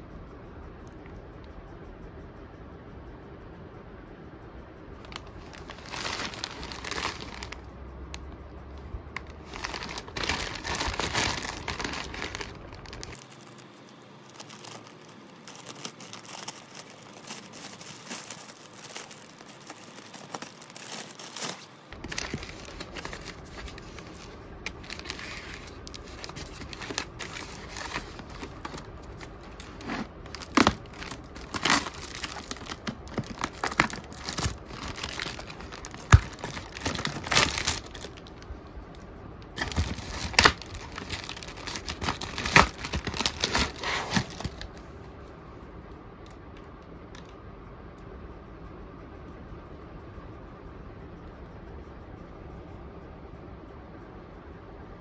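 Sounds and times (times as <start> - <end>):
plastic packaging crinkling and tearing: 5.0 - 8.2, 8.8 - 44.9
scissors snipping plastic wrap: 14.3 - 38.4, 39.6 - 44.7.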